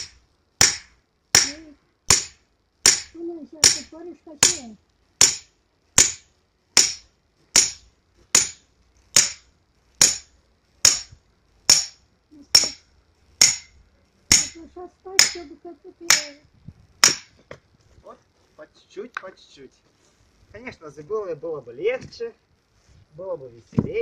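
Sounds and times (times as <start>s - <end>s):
hammer striking axe in firewood: 0.0s - 12.0s, 12.6s - 12.8s, 13.4s - 14.6s, 15.2s - 15.5s, 17.0s - 17.6s.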